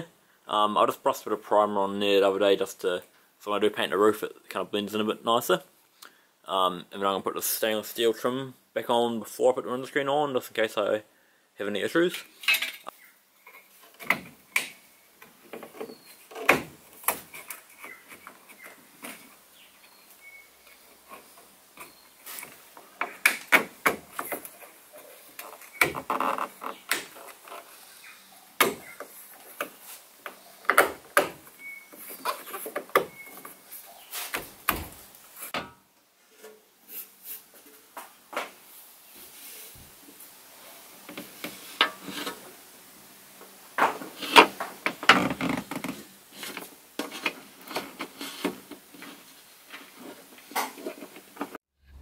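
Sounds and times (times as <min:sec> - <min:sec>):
trim clicking and knocking: 0:28.6 - 0:31.5.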